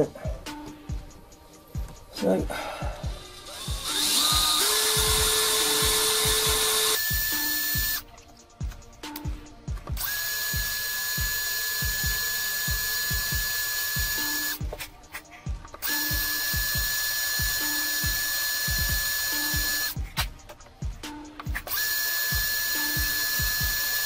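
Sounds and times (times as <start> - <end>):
drill whining: 3.0 - 8.0, 10.0 - 14.6, 15.7 - 20.0, 21.5 - 24.0.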